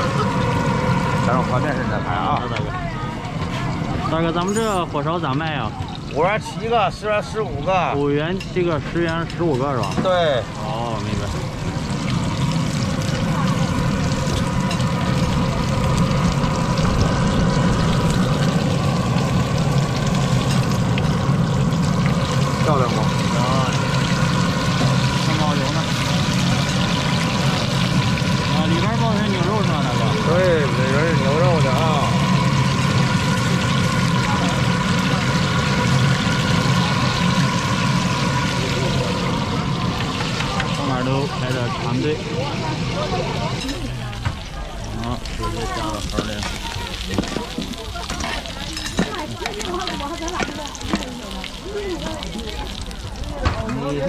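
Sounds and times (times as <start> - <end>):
machine drone with whine: 0.0 - 6.2, 9.9 - 47.7
low hum: 10.5 - 47.1.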